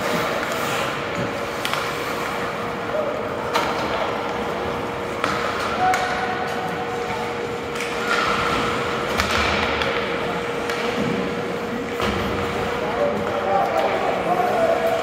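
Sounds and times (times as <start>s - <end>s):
hockey sticks clacking on puck: 0.0s - 2.6s, 3.4s - 15.0s
steady arena hum: 0.0s - 15.0s
puck hitting boards: 5.2s - 6.7s.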